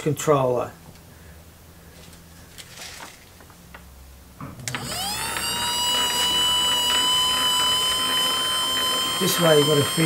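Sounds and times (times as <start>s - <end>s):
electric motor whining: 4.7s - 10.0s.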